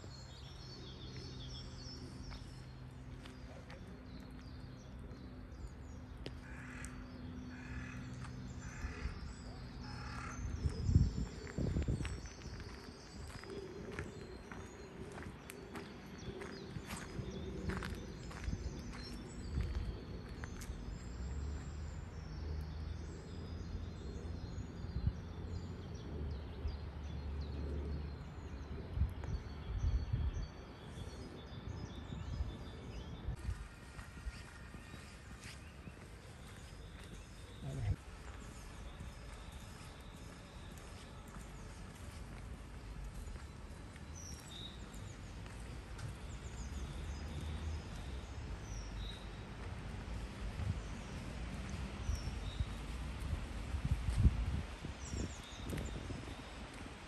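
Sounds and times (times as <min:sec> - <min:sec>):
small birds chirping: 0:00.0 - 0:57.0
footsteps on wet brick paving: 0:00.5 - 0:07.0, 0:10.0 - 0:21.8, 0:33.4 - 0:57.0.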